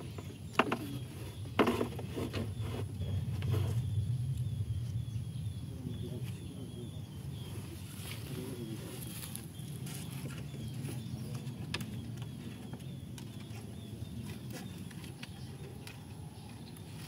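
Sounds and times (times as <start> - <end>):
bamboo poles clicking and tapping: 0.0 - 1.0, 11.3 - 13.6, 14.2 - 17.0
faint bird chirps: 0.0 - 17.0
steady low rumble: 2.4 - 17.0.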